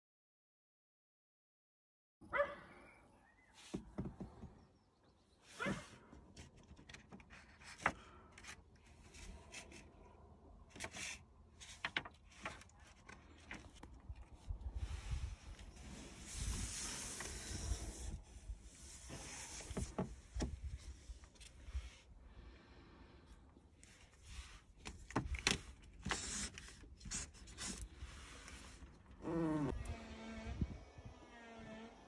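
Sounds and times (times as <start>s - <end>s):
paper rustling: 6.4s - 14.6s.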